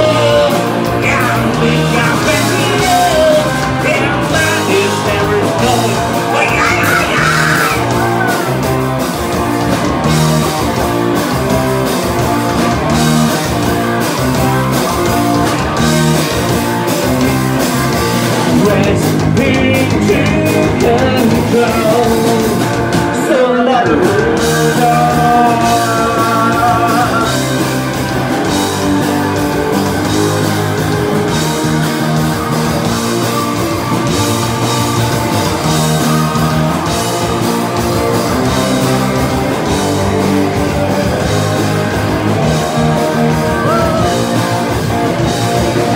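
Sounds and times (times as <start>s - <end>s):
person singing: 0.0s - 8.5s, 18.4s - 27.6s, 43.4s - 44.4s
electric guitar lead: 0.0s - 45.9s
live rock band playing: 0.0s - 45.9s.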